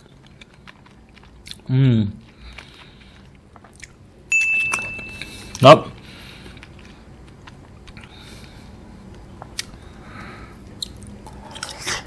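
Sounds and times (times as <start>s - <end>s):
wet mouth eating sounds: 0.0s - 4.0s, 10.6s - 12.0s.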